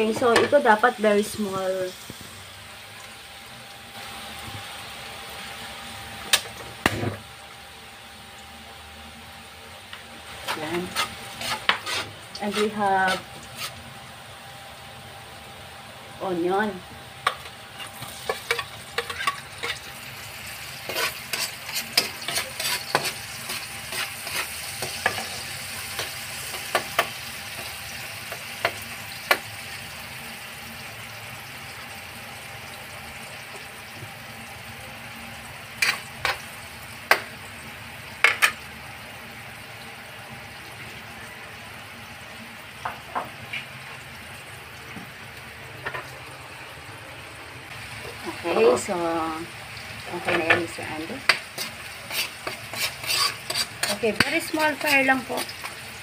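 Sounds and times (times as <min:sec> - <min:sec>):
onion and garlic sizzling in oil: 0:00.0 - 0:56.0
spatula tapping a wok: 0:26.0 - 0:27.7, 0:51.2 - 0:51.7.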